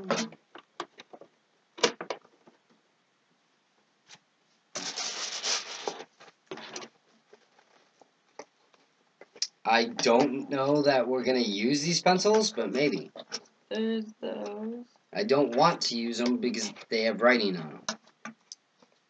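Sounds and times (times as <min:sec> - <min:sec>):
packaging rustling: 0:04.8 - 0:08.0.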